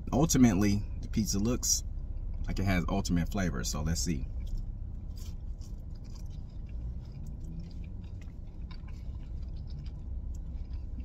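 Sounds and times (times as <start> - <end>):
steady low hum: 0.0 - 11.0
person chewing crunchy food: 4.3 - 11.0.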